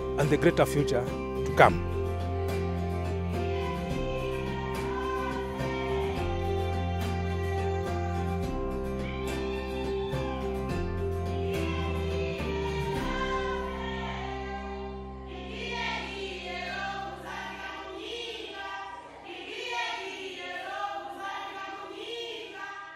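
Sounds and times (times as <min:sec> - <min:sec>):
sustained instrumental chords: 0:00.0 - 0:17.4
group of voices singing: 0:00.0 - 0:22.9.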